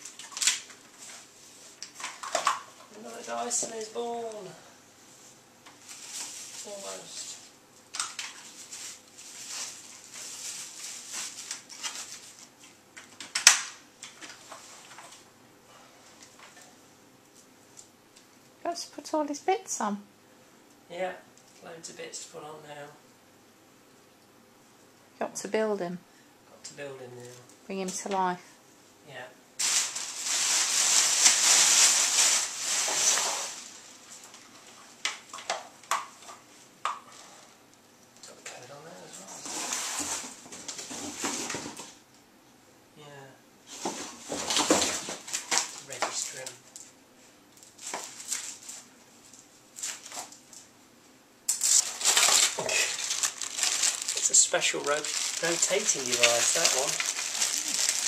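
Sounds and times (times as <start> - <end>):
plastic packaging crinkling: 0.0 - 4.4, 5.8 - 15.2, 29.6 - 36.4, 44.2 - 46.9, 47.6 - 50.7, 51.5 - 58.0.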